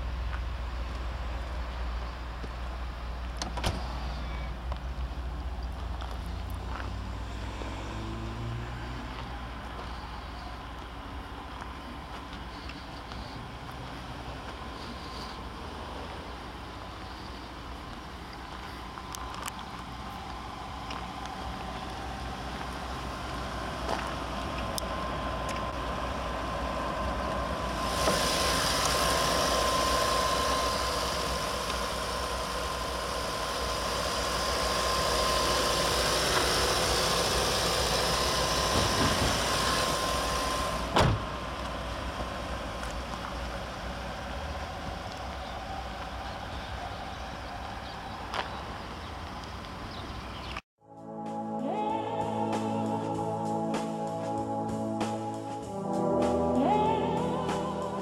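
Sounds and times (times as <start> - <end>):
car engine idling: 8.9 - 50.4
sharp thump: 40.9 - 41.3.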